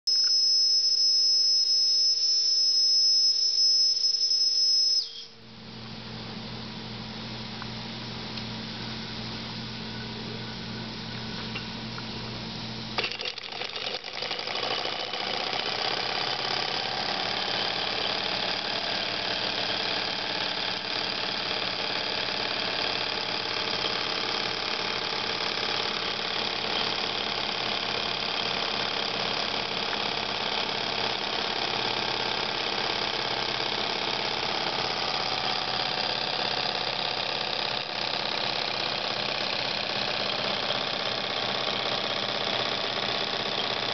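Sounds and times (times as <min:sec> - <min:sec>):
steam engine running: 0:13.0 - 0:43.9.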